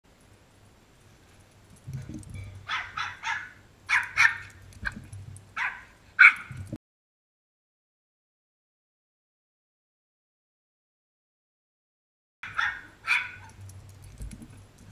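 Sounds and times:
small dog yapping: 2.4 - 5.0, 5.6 - 6.6, 12.4 - 13.6.

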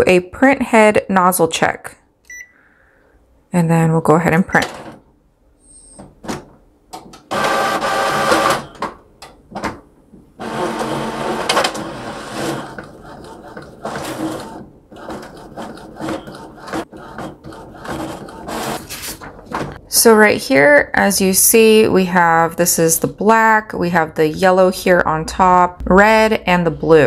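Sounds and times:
printer motors whirring: 10.4 - 19.6.

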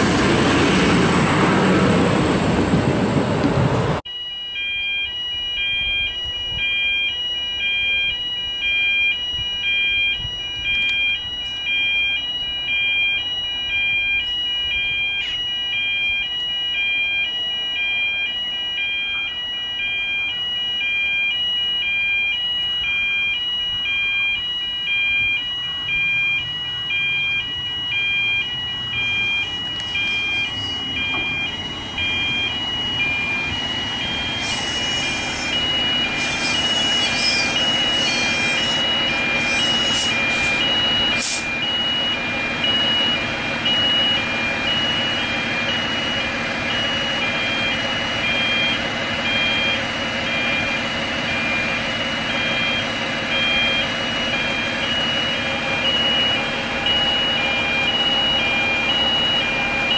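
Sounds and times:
diesel railcar rumble: 0.0 - 4.0, 28.7 - 59.9
two-tone warning alarm: 4.0 - 59.9.

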